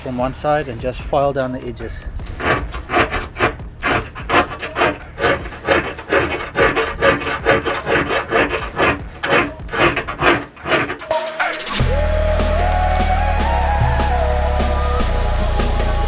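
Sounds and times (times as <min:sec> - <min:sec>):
file rasping on sheet metal: 0:01.9 - 0:11.8.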